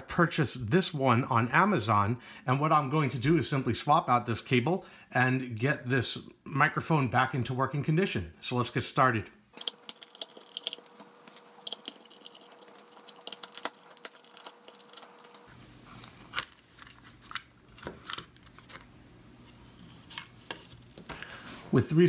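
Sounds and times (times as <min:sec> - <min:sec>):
plastic cover handled: 0:09.6 - 0:21.8.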